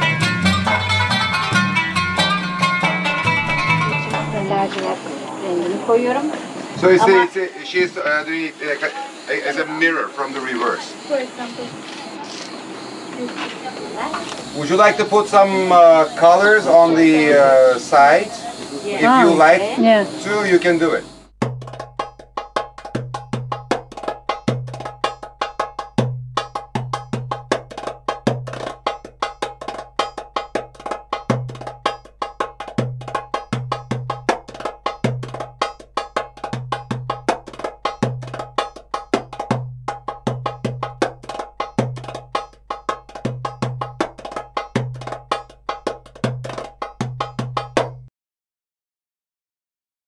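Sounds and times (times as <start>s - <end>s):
repeating bass line: 0.0s - 4.6s, 21.2s - 48.1s
cowbell-like percussion beat: 0.0s - 4.7s, 21.2s - 48.1s.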